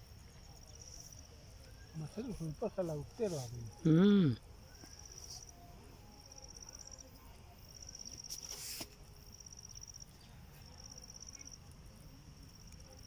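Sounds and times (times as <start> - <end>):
brief hiss: 8.2 - 9.1.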